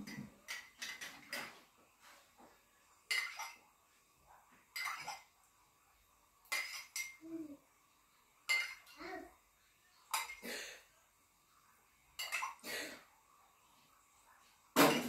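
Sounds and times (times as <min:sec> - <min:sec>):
spoon clinking against glass: 0:04.8 - 0:05.2, 0:08.5 - 0:09.0, 0:12.2 - 0:12.6.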